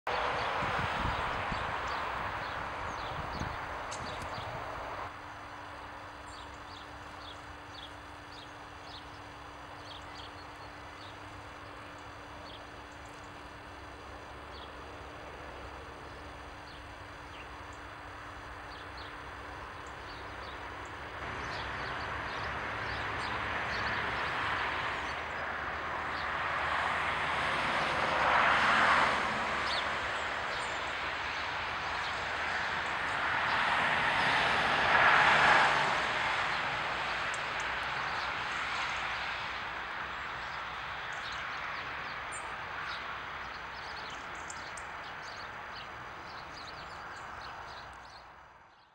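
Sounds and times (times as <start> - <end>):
songbirds chirping: 0.1 - 26.4, 29.6 - 34.4, 36.2 - 48.9
low hum and rumble: 0.1 - 28.3.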